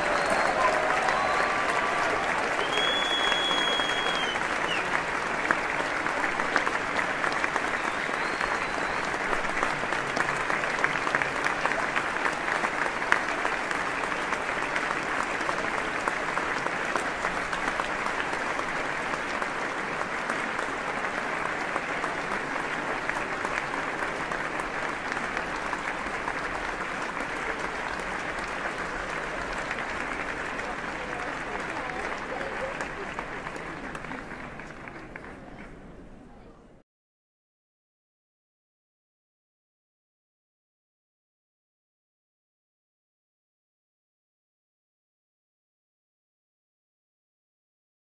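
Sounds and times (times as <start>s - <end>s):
audience applauding: 0.0s - 35.8s.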